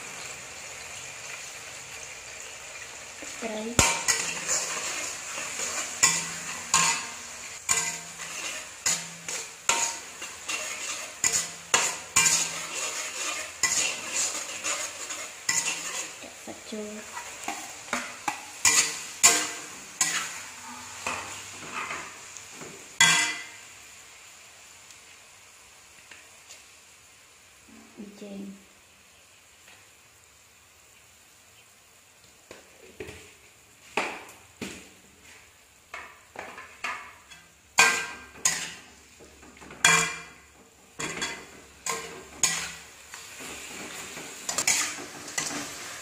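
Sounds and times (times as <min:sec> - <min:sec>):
oil sizzling: 0:00.0 - 0:46.0
metal ladle clanking on wok: 0:03.8 - 0:16.1, 0:23.0 - 0:23.5, 0:39.6 - 0:40.4.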